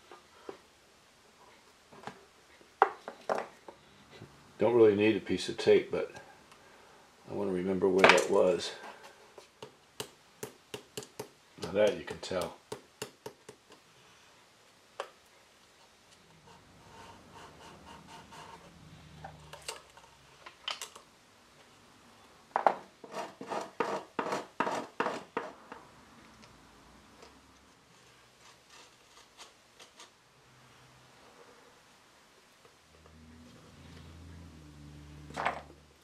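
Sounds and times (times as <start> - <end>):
metal blade scraping wood: 23.0 - 25.6, 28.3 - 30.2.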